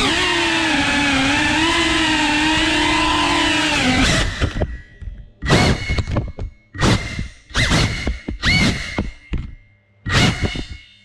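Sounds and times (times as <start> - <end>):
drone motors whining: 0.0 - 6.2.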